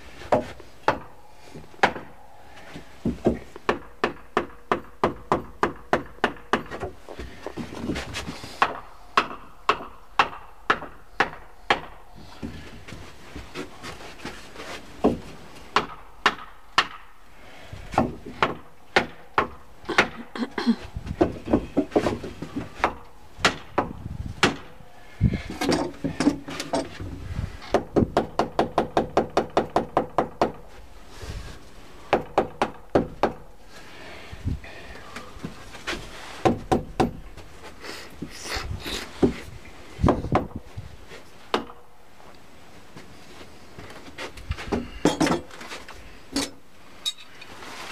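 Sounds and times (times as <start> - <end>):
hammer striking wooden blocks: 8.6 - 12.0, 15.1 - 17.1.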